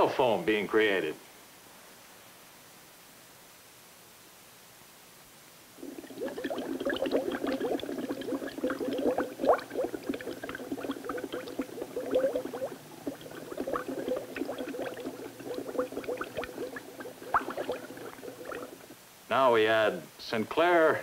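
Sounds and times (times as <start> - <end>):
gas bubbling through oil: 5.8 - 19.0.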